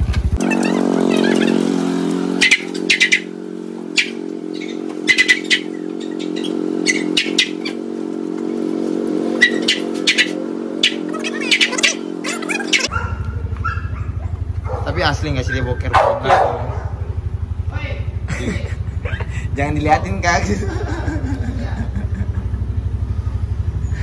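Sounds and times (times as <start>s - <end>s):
small motor humming: 0.3s - 15.7s
high bird chirps: 0.4s - 7.9s, 9.3s - 12.9s.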